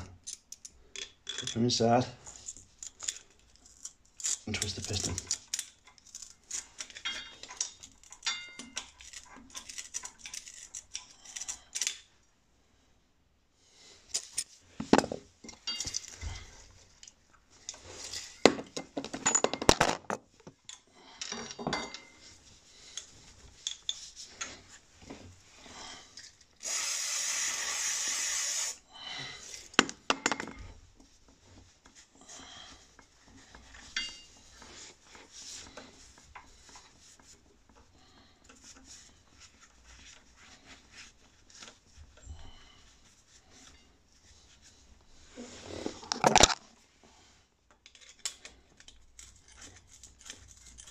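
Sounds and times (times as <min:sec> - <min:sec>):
metal tools clinking and scraping: 0:00.2 - 0:12.1, 0:15.4 - 0:24.8, 0:33.3 - 0:34.9
aerosol spray hiss: 0:26.6 - 0:28.8.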